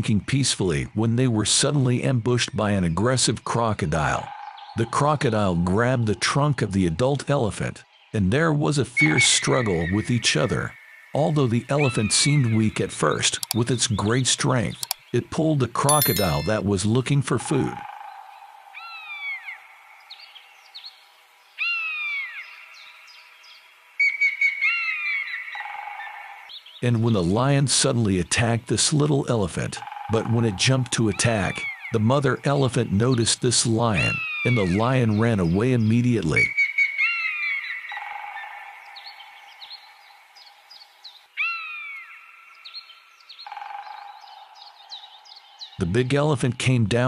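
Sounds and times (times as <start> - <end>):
birds chirping: 6.5 - 17.0, 17.6 - 47.0
bird whistled falling calls: 9.0 - 10.9
small repeated chirps: 13.4 - 13.7, 14.7 - 15.2, 15.9 - 16.7.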